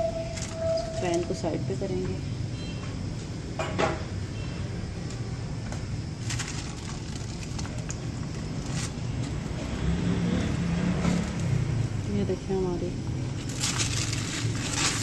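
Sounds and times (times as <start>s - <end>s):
paper crinkling and rustling: 6.2s - 9.4s, 13.4s - 15.0s.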